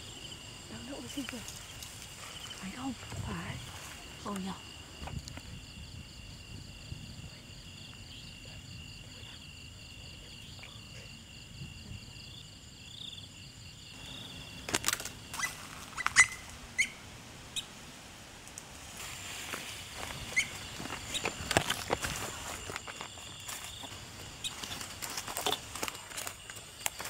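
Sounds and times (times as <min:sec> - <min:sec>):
night insects trilling: 0:00.0 - 0:27.0
sharp clicks and short chirps: 0:14.9 - 0:16.9.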